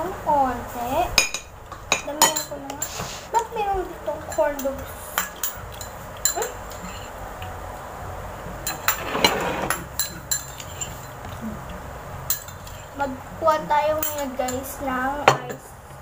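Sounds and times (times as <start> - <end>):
cutlery clinking against dishes: 1.2 - 3.0, 4.3 - 7.1, 8.7 - 11.2, 12.3 - 12.9.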